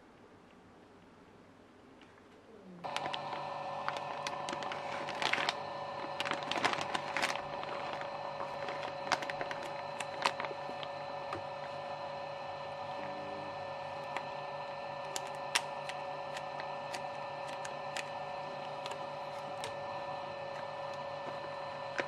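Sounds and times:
plastic bag crinkling: 2.8 - 11.9, 13.8 - 22.0
pump motor humming: 2.8 - 22.0.

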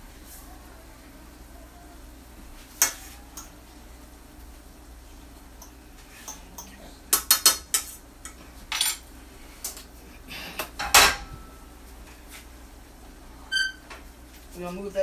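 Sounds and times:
cookware clattering: 5.6 - 9.0, 10.8 - 11.6.

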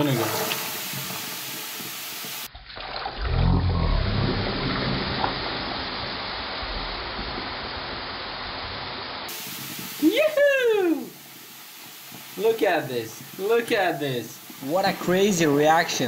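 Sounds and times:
hissing fizz in sink drain: 0.0 - 3.2, 4.3 - 16.0
low rumble: 3.2 - 9.2.

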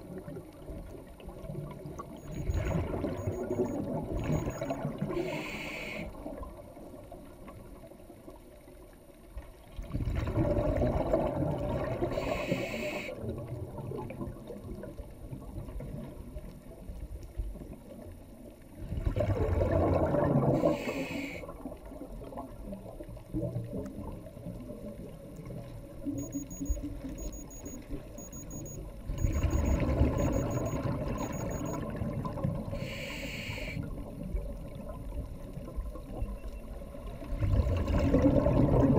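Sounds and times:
exhaled bubbles underwater: 0.0 - 8.2, 9.7 - 16.9, 17.5 - 27.2, 28.6 - 38.9
regulator hiss on inhale: 5.1 - 6.2, 12.1 - 13.2, 20.6 - 21.5, 32.8 - 33.8.

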